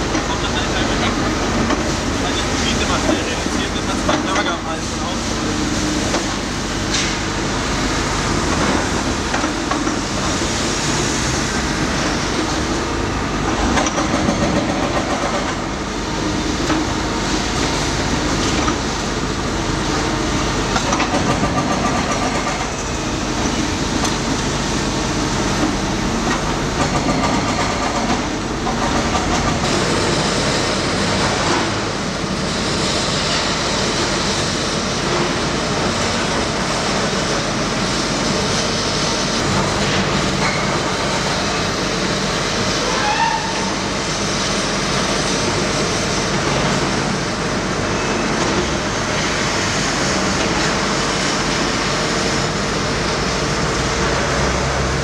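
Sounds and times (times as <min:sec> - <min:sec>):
excavator diesel engines running: 0:00.0 - 0:55.0
water hose hissing: 0:04.8 - 0:13.5.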